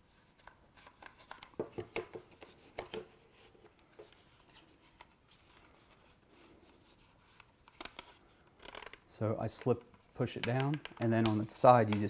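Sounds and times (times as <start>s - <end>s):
sharp plastic clicks and knocks: 9.6s - 12.0s.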